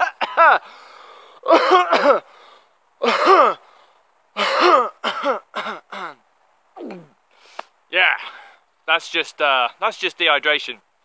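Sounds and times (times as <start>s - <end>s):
man coughing hoarsely: 0.0s - 0.7s, 1.4s - 2.3s, 3.0s - 3.6s, 4.4s - 6.2s.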